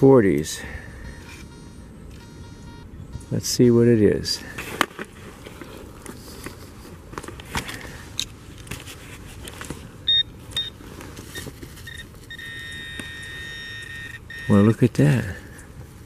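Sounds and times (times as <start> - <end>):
metal detector steady tone: 0.3 - 3.8, 10.0 - 15.6
metal detector beeps: 1.0 - 3.6, 10.0 - 14.9.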